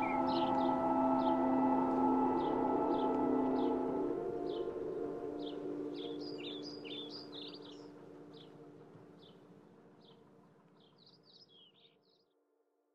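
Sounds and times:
low steady ringing tone: 0.0 - 6.0
birds chirping: 0.0 - 8.6.

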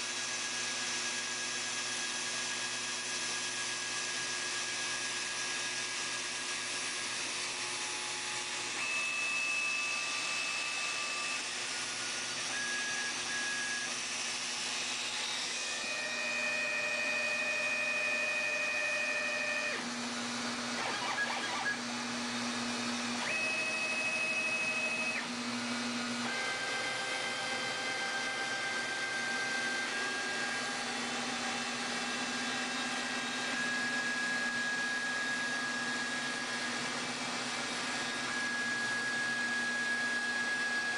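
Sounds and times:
spindle motor rushing: 7.1 - 40.9
stepper motors whining: 7.7 - 37.0.

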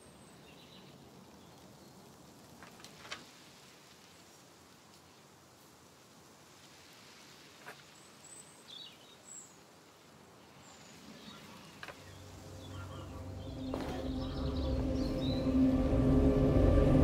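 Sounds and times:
small birds chirping: 0.0 - 2.6, 6.8 - 15.8
low rumble: 12.2 - 17.0.

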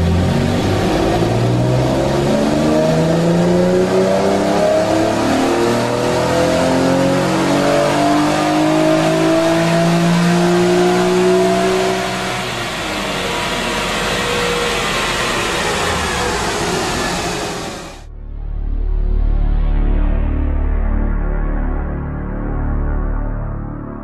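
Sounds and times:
car engine accelerating: 0.0 - 18.1.

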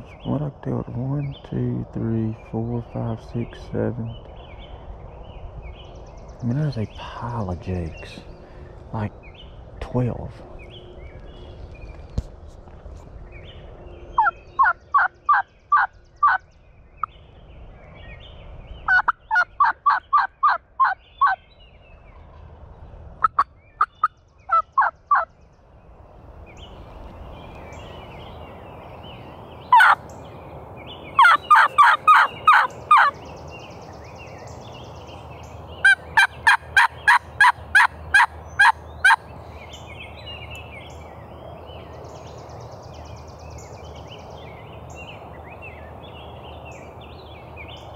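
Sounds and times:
turkey call yelps: 29.7 - 30.0, 31.2 - 33.1, 35.8 - 39.2.

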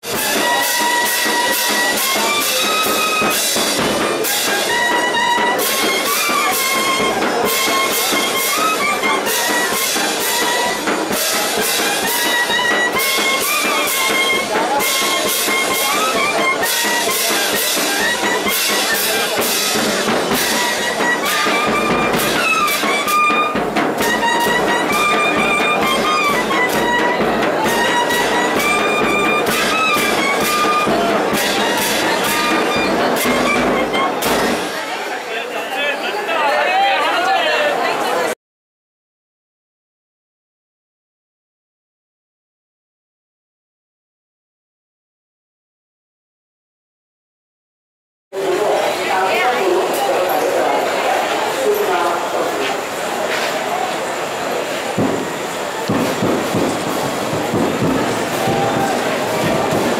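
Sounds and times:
brass and woodwind melody: 0.0 - 34.6
steady drum beat: 0.0 - 34.8, 54.9 - 59.9.

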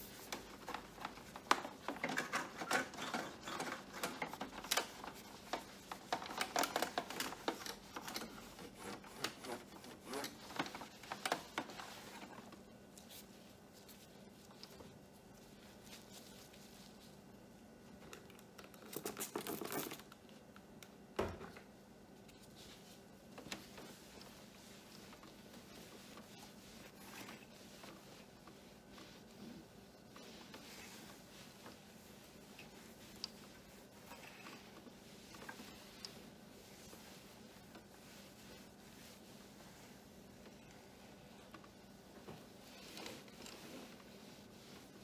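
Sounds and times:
cloth rubbing on glass: 0.0 - 17.3, 22.5 - 45.0.

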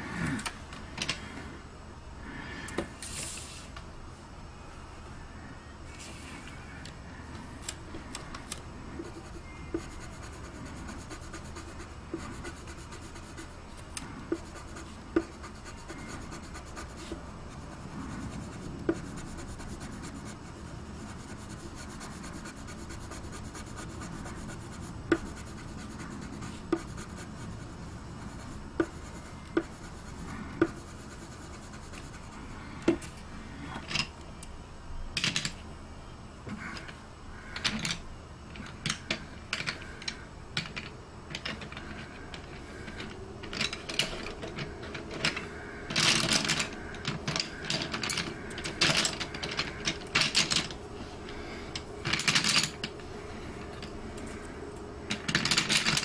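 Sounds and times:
pencil rubbing on paper: 9.0 - 32.4.

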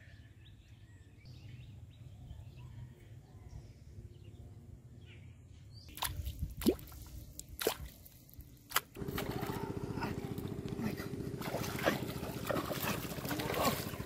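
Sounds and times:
plops at water surface: 6.0 - 7.0
small engine running: 9.0 - 14.0.

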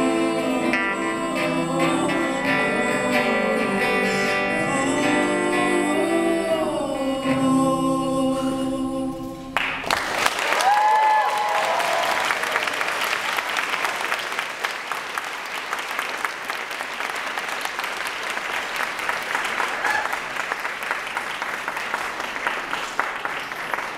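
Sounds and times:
audience applauding: 9.6 - 23.9.

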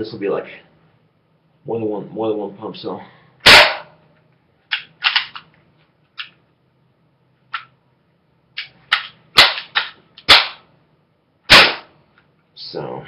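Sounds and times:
air gun cracks: 8.6 - 10.6, 11.5 - 12.0.

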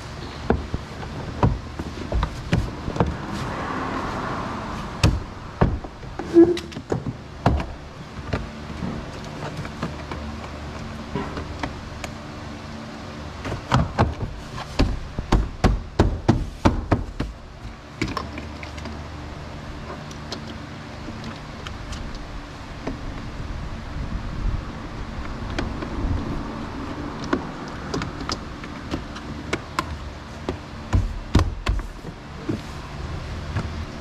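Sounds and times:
steady low hum: 0.0 - 34.0
knocks and clicks on car door: 5.0 - 6.0, 27.3 - 31.9.

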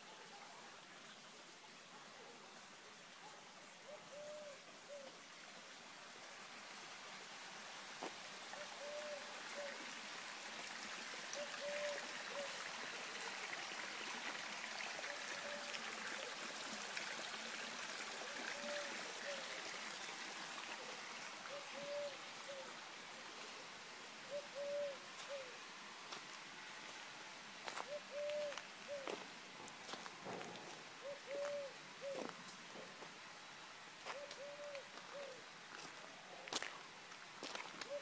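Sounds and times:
stream running: 0.0 - 38.0
bird low hooting call: 3.9 - 5.1, 8.6 - 9.8, 11.4 - 12.6, 21.5 - 22.7, 24.2 - 25.6, 27.8 - 29.2, 31.0 - 32.3, 34.1 - 35.4.

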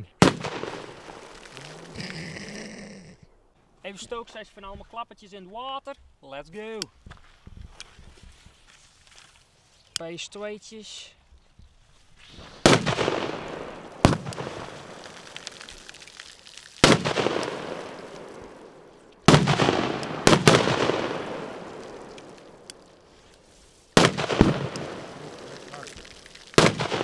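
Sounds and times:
firecracker bangs with echo: 0.2 - 1.6, 12.4 - 15.7, 16.8 - 23.0, 24.0 - 27.0.

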